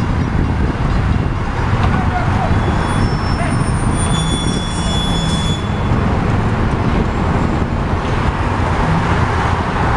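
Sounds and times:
faint high squeals: 2.5 - 5.9.

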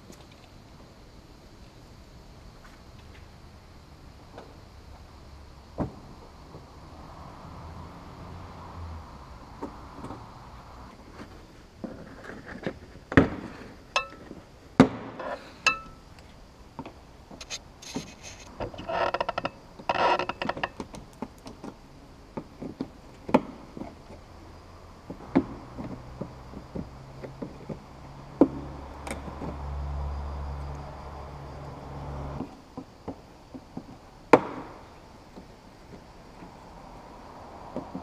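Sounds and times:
low steady hum: 13.7 - 20.6.

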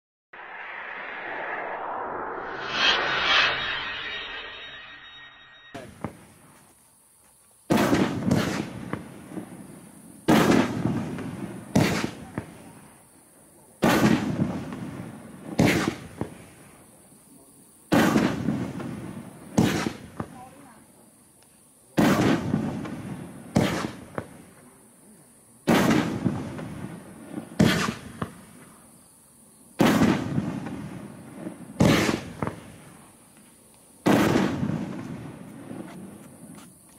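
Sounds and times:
light firework pops: 5.9 - 6.4, 7.7 - 9.6, 10.2 - 12.8, 13.8 - 16.8, 17.9 - 20.8, 21.4 - 24.8, 25.6 - 28.8, 29.8 - 36.7
firework booms: 7.7 - 12.8, 13.8 - 16.7, 17.9 - 20.6, 22.0 - 24.5, 25.6 - 28.8, 29.8 - 33.0, 34.0 - 35.9.

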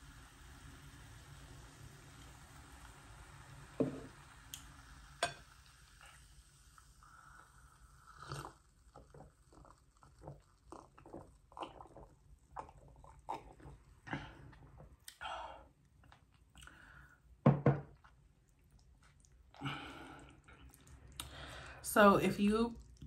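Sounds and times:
person gulping and swallowing: 8.1 - 17.0, 17.8 - 21.7.

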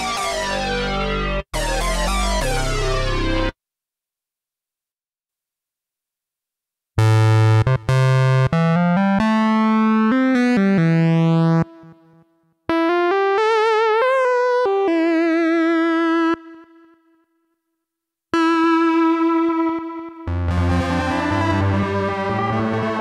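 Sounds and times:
synthesizer lead melody: 0.0 - 3.6, 7.0 - 12.1, 12.7 - 17.0, 18.4 - 23.0.

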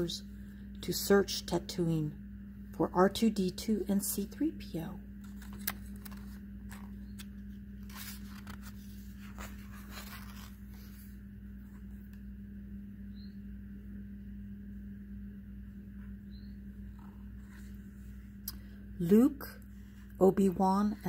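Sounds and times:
low hum: 0.0 - 21.0
book pages turning: 5.2 - 12.2.

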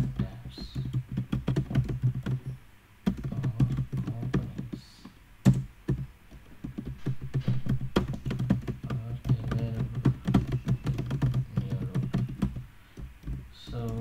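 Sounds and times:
keyboard key clicks: 5.4 - 14.0.

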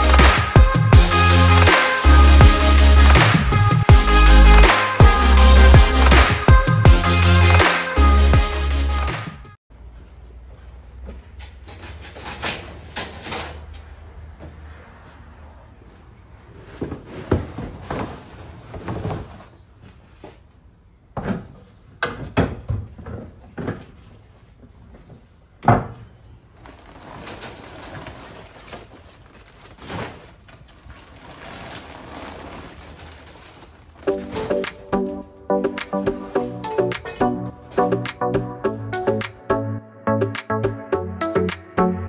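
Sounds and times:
plastic tarp rustling: 16.6 - 19.6, 26.6 - 35.2
wheelbarrow knocking down: 34.0 - 35.0.

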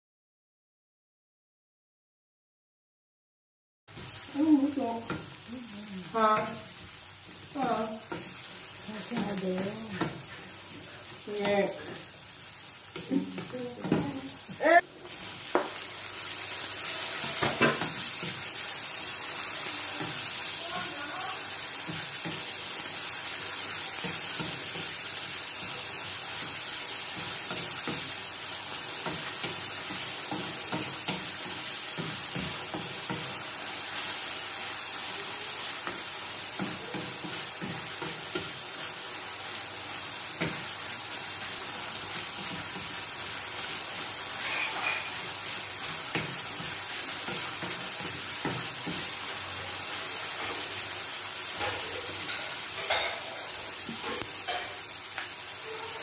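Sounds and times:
vegetables sizzling in hot oil: 3.9 - 56.0
wooden spatula scraping pan: 44.3 - 45.4.

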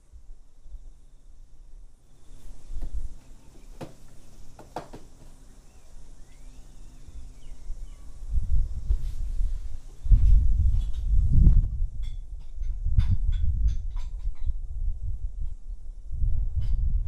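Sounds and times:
faint rising chirps: 0.6 - 8.9
wind buffeting microphone: 2.2 - 17.0.

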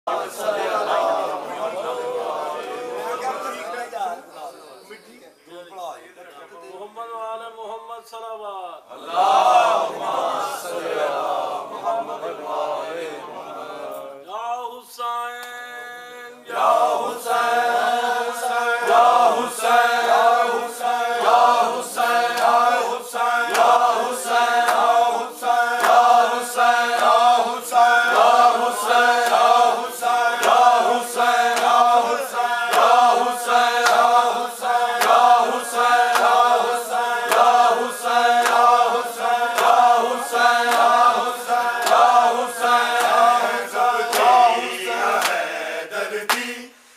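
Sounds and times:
men chanting a lament in unison: 0.0 - 3.8, 8.9 - 46.8
hands slapping chests: 23.5 - 23.8, 31.5 - 31.9, 33.8 - 34.2, 36.1 - 36.5, 38.3 - 38.8, 40.6 - 41.0, 41.8 - 42.1, 42.9 - 43.3, 44.1 - 44.4, 45.1 - 45.4.

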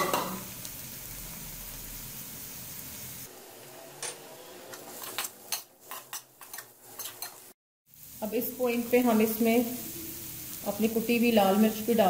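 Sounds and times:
chicken and onions sizzling: 0.0 - 12.0
metal utensil scraping a pan: 3.8 - 7.5.

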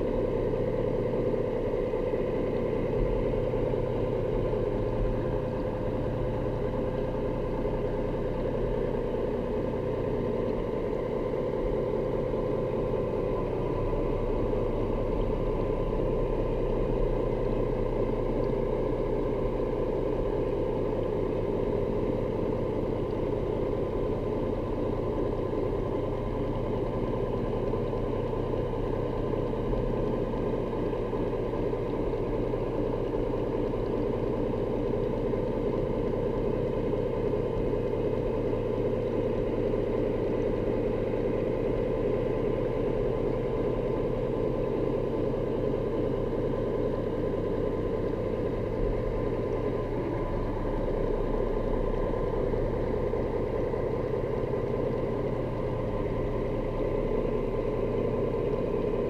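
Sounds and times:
engine drone underwater: 0.0 - 59.0.

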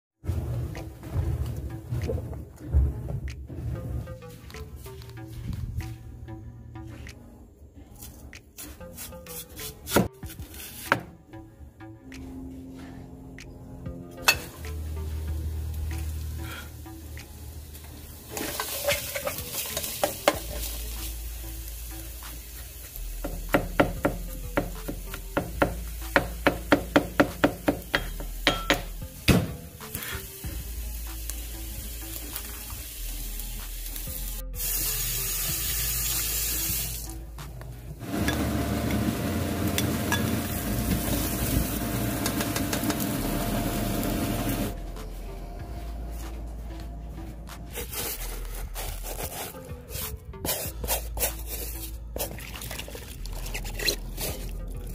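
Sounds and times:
light background music: 0.2 - 54.9
onions sizzling in frying pan: 17.5 - 23.0, 30.0 - 34.0, 38.0 - 44.7.

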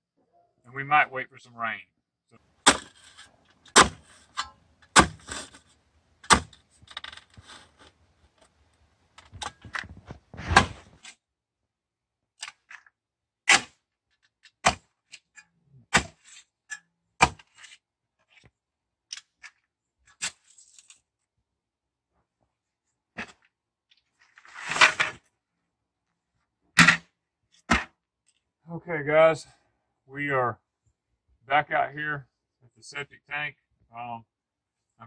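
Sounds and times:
scraping of loose dirt: 2.4 - 8.6, 9.2 - 11.2, 24.0 - 25.3
post hole digger striking ground: 2.6 - 3.0, 3.7 - 5.6, 6.2 - 6.6, 17.2 - 17.4, 26.8 - 27.1.

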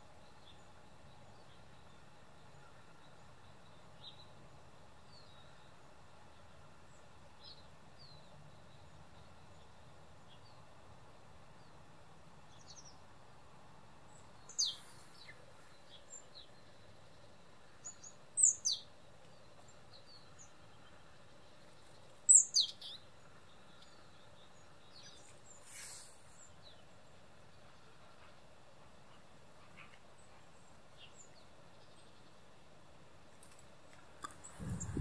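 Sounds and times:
faint small-bird chirps: 14.1 - 28.4
soft rustle: 14.6 - 16.1, 25.2 - 26.6.

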